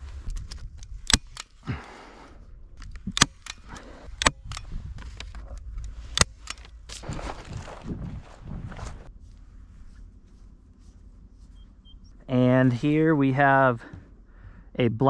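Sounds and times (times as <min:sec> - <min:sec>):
sharp clicks: 0:00.2 - 0:07.0
rustling on dry grass: 0:04.6 - 0:13.0.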